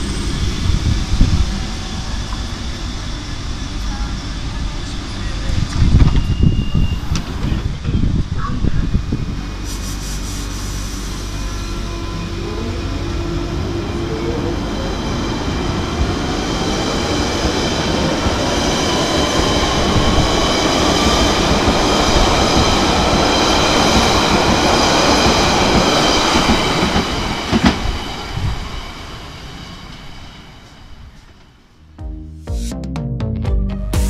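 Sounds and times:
train traction motor whine: 0.0s - 22.4s.

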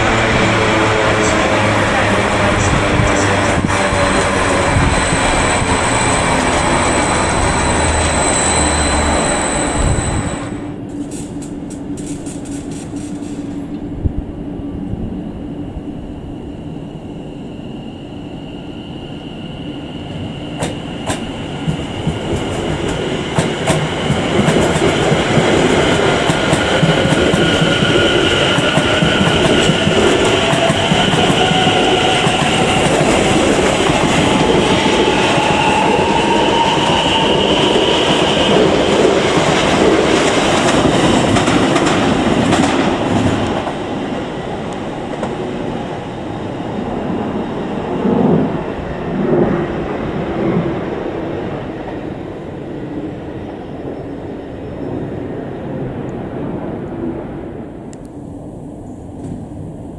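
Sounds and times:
rising whine: 0.0s - 11.4s
electric train whine: 0.0s - 59.9s.

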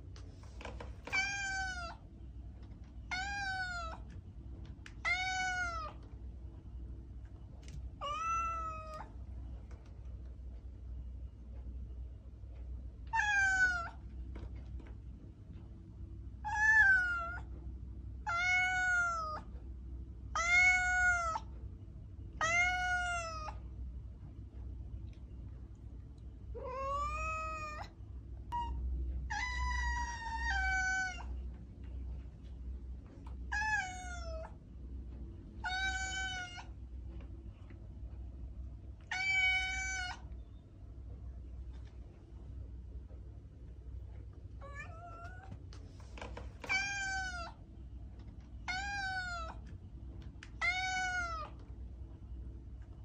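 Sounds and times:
cat meowing: 1.1s - 2.0s, 3.1s - 4.1s, 5.0s - 6.0s, 8.0s - 9.1s, 13.1s - 14.0s, 16.4s - 17.5s, 18.2s - 19.5s, 20.3s - 21.5s, 22.4s - 23.6s, 26.6s - 27.9s, 28.5s - 31.4s, 33.5s - 34.6s, 35.6s - 36.7s, 39.0s - 40.3s, 44.6s - 45.6s, 46.6s - 47.6s, 48.6s - 49.6s, 50.6s - 51.6s.

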